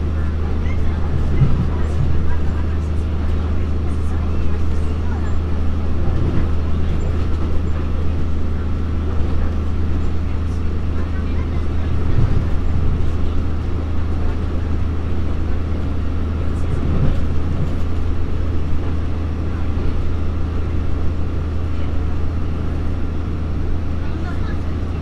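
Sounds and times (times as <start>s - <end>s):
diesel engine drone: 0.0s - 25.0s
wheels rushing on rails: 0.0s - 25.0s.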